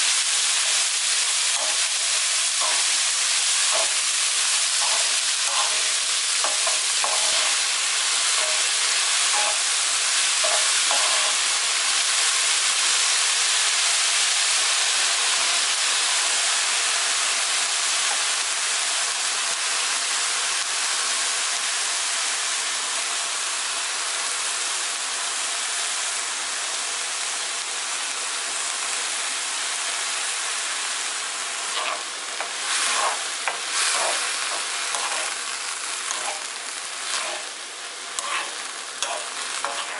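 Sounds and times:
vegetables sizzling in pan: 0.0s - 39.9s
wooden spoon scraping pan: 31.8s - 35.4s, 36.0s - 37.5s, 38.2s - 39.9s.

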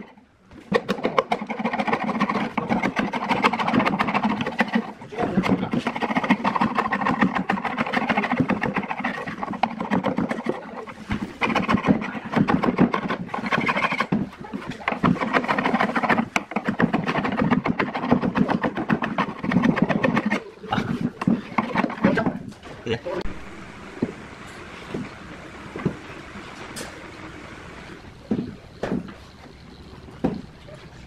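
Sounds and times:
chisel scraping wood: 0.0s - 22.5s.

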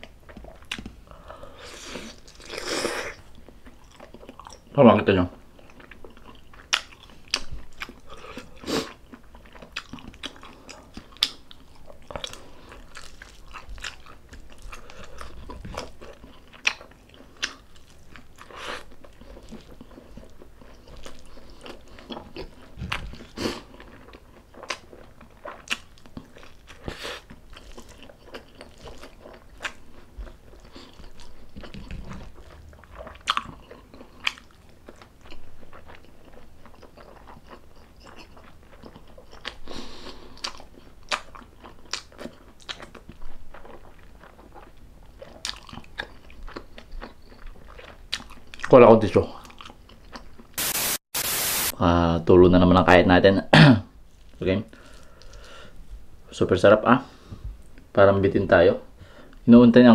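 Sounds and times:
person chewing with wet mouth clicks: 0.0s - 1.0s, 5.6s - 48.7s.

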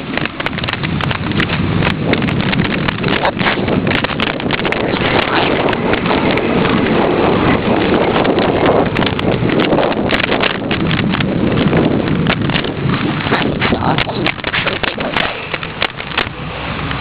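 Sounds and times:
wind on microphone: 0.0s - 17.0s
handling knocks and rustling: 8.1s - 17.0s.

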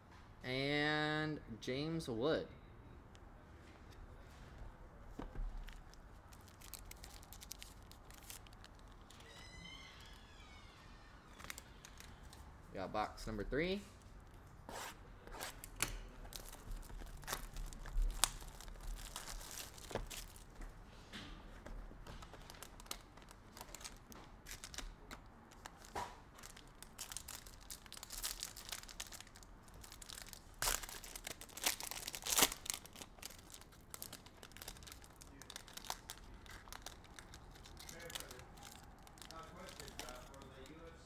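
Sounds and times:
packaging crinkling and tearing: 5.5s - 10.5s, 11.3s - 12.5s, 15.6s - 20.6s, 22.0s - 41.0s
foil pack crinkling: 5.6s - 9.6s, 16.2s - 20.6s, 22.1s - 41.0s.

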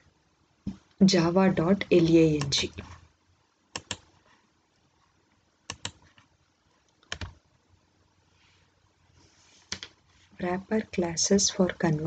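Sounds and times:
faint room hiss: 0.0s - 12.0s
computer mouse clicks: 3.7s - 4.2s, 5.7s - 6.3s, 6.9s - 7.4s.

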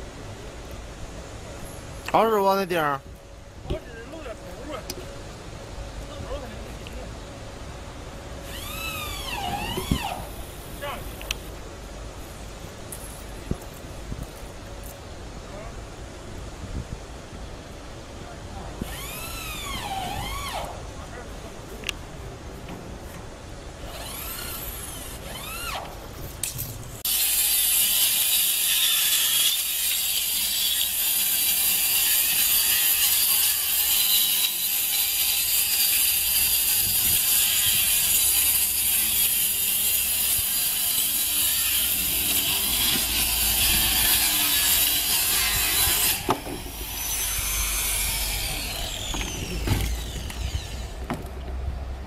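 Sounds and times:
angle grinder cutting board: 27.1s - 51.2s.

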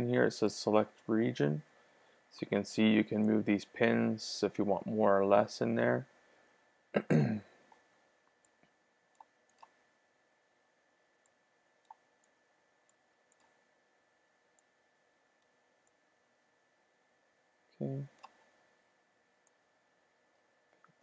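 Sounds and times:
faint computer mouse clicks: 7.7s - 9.8s, 11.2s - 13.5s, 18.1s - 18.4s.

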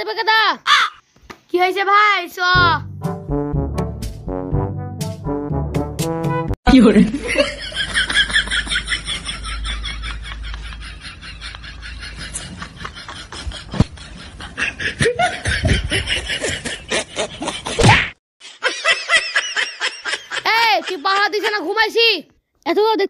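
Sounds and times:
laughter: 7.1s - 17.8s, 18.5s - 21.6s.

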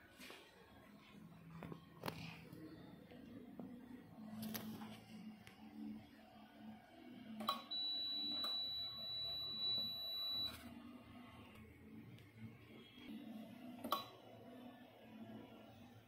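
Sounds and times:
high-pitched tester beep: 7.5s - 10.6s.

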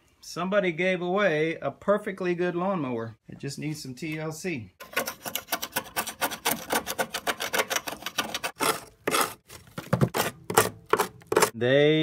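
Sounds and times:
scraper scraping metal mower deck: 4.8s - 11.6s.

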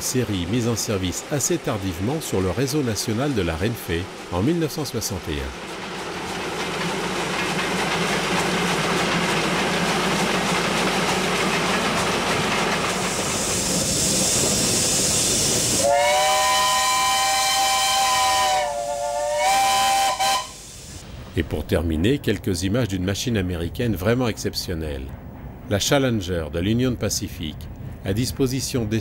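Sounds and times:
steam locomotive exhaust: 0.0s - 21.3s
steam hiss: 11.0s - 21.2s
steam locomotive chime whistle: 15.7s - 20.7s.

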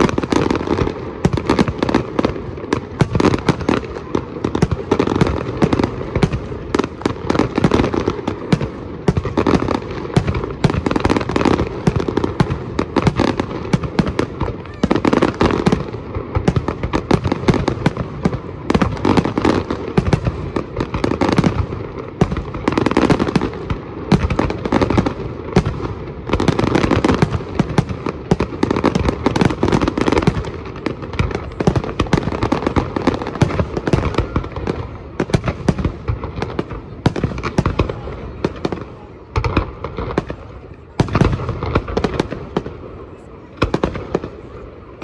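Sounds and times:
fireworks bursting: 0.0s - 45.0s.

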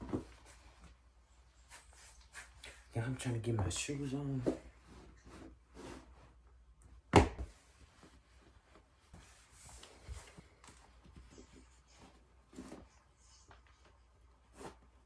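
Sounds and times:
clothing rustling: 7.4s - 15.0s.

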